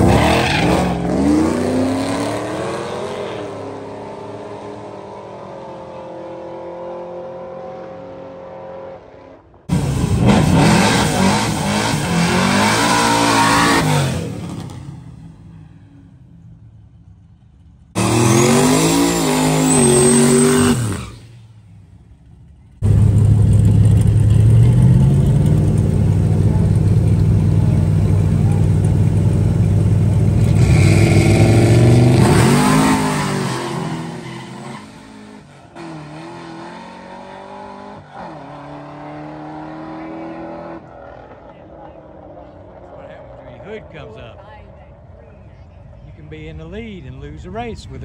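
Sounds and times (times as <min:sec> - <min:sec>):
racing engines revving: 0:00.0 - 0:15.2, 0:18.0 - 0:21.3, 0:22.8 - 0:45.1
engines idling: 0:14.9 - 0:18.0, 0:21.3 - 0:31.9.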